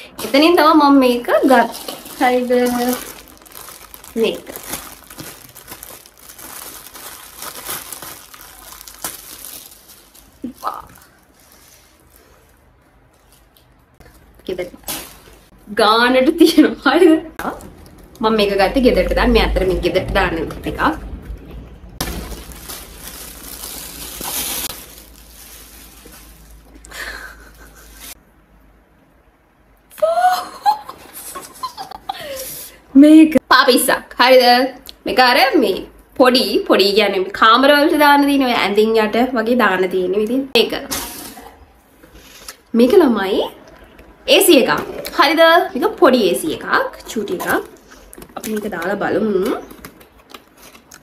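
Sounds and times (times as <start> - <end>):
rustling and handling noise: 0.0 - 15.7, 20.2 - 28.2
plastic bag crinkling: 0.2 - 15.5, 22.0 - 28.2.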